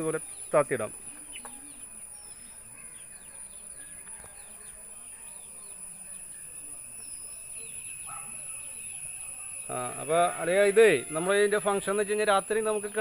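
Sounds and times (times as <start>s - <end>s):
birds chirping: 0.0s - 13.0s
high-pitched insect drone: 5.0s - 13.0s.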